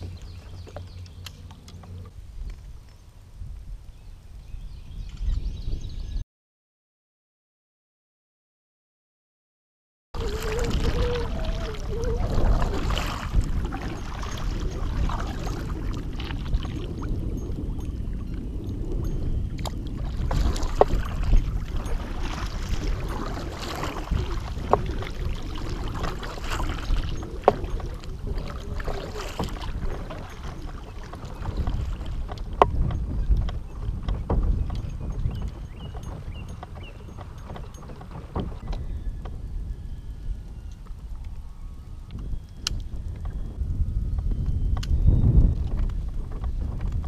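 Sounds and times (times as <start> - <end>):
water noise: 0.0 - 6.0, 10.2 - 47.0
wind on microphone: 0.0 - 6.2, 10.2 - 47.0
light knocks on hull: 28.8 - 39.4.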